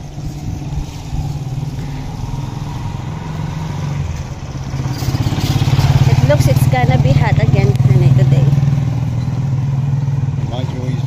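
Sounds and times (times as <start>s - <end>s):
small motorcycle engine running: 0.0s - 11.0s.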